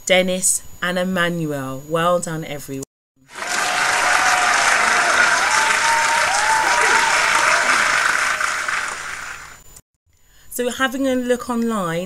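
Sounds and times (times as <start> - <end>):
crowd applause: 3.3 - 9.6
voices whooping: 3.3 - 9.6.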